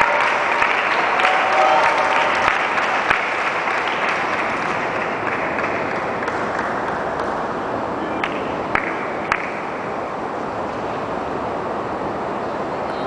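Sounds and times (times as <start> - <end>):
spectators applauding: 0.0 - 9.8.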